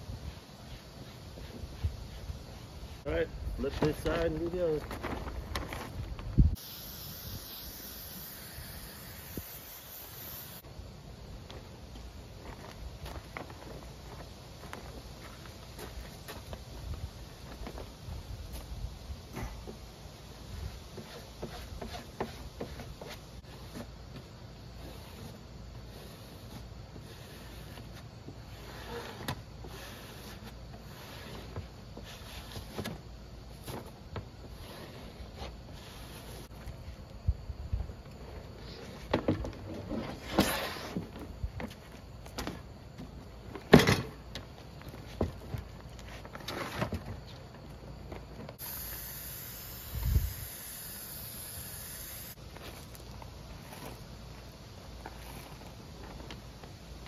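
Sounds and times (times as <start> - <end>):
aerosol spray hissing: 6.6 - 10.6, 48.6 - 52.4.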